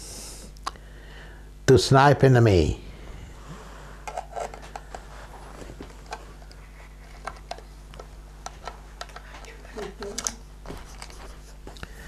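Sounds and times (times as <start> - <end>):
low hum: 2.6 - 9.7.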